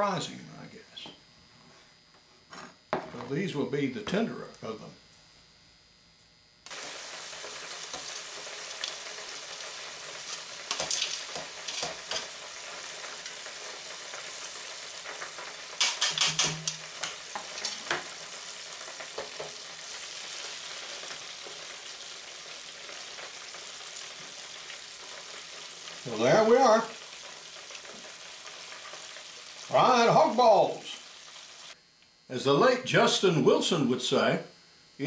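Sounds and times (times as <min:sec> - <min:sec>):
food sizzling in hot oil: 0:06.7 - 0:31.8.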